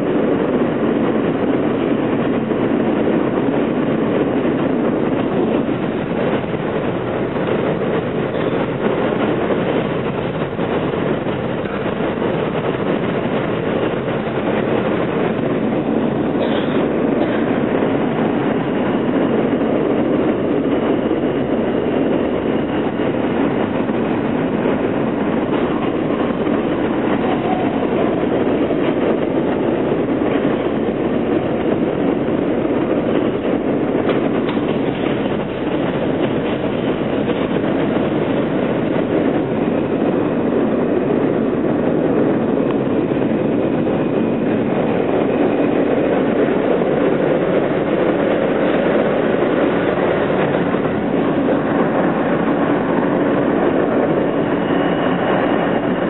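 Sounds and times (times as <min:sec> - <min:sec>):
train wheels rumbling on rail: 0:00.0 - 0:56.0
wheels clacking over rail joints: 0:04.5 - 0:17.7, 0:23.5 - 0:40.2.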